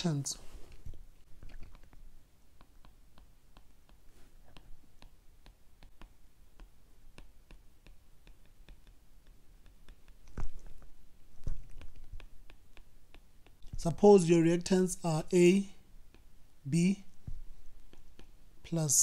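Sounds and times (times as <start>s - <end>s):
stylus clicking on tablet screen: 1.4s - 13.9s, 17.1s - 18.4s.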